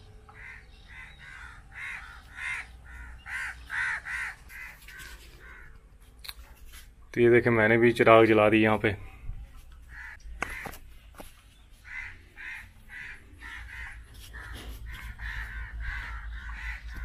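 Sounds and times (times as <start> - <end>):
crows cawing: 0.3 - 5.8, 9.9 - 10.8, 11.8 - 17.0.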